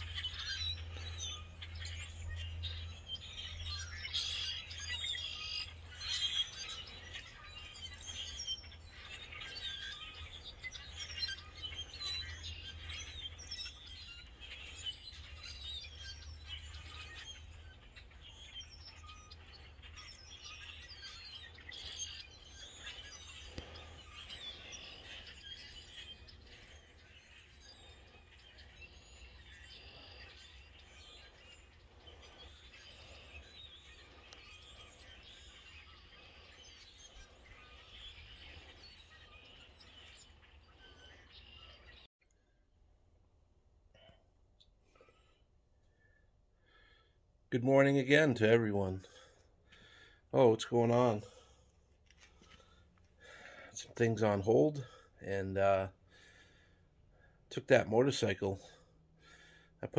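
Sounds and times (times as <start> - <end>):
birds chirping and chattering: 0.0 - 42.5, 44.0 - 59.9.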